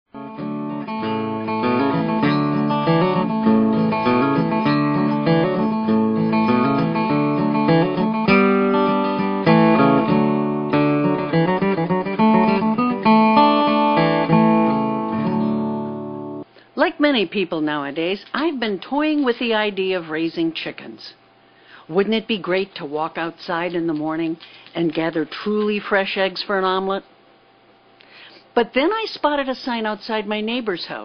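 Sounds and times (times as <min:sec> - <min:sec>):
acoustic guitar music: 0:00.1 - 0:16.5.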